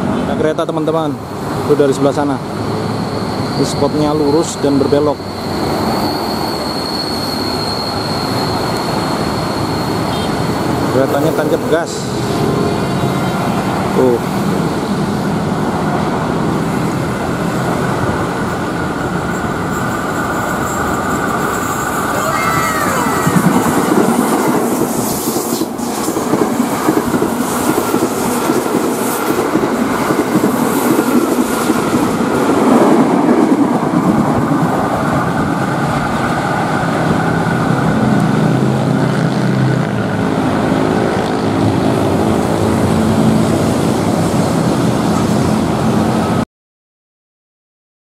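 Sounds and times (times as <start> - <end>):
train rumbling past: 0.0 - 46.4
wheels clattering on rails: 16.9 - 43.5.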